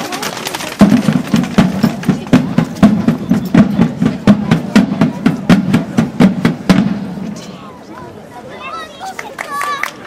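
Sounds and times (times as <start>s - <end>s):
field drum marching rhythm: 0.0s - 7.5s.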